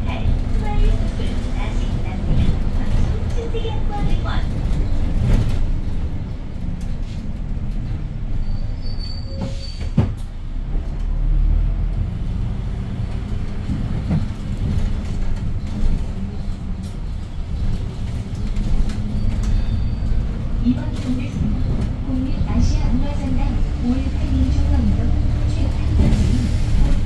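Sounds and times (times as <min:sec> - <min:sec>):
bus engine low rumble: 0:00.0 - 0:27.0
squeaks and rattles: 0:06.8 - 0:10.2, 0:14.0 - 0:21.9.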